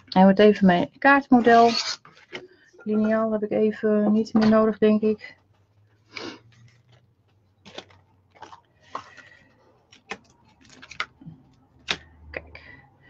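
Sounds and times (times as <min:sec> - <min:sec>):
card and plastic rustling: 0:01.4 - 0:02.7, 0:06.4 - 0:12.1.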